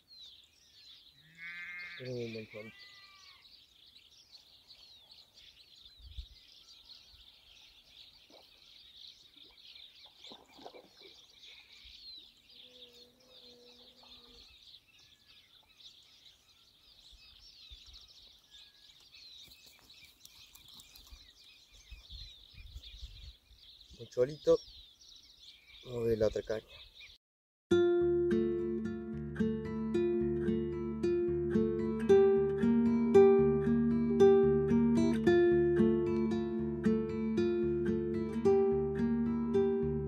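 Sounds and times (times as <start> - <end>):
small birds chirping: 0.0 - 27.2.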